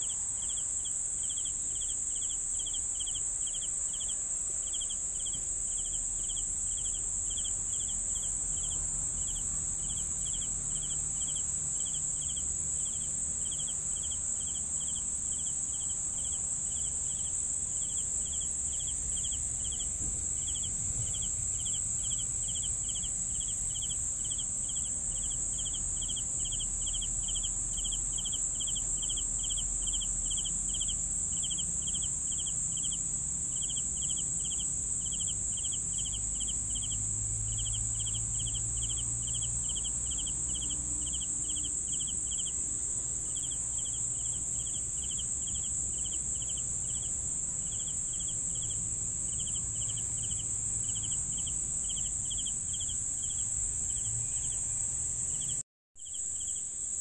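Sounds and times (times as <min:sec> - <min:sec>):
cricket chirping: 0:00.0 - 0:57.0
high-pitched cricket trill: 0:00.0 - 0:57.0
faint low rumble: 0:16.8 - 0:31.0.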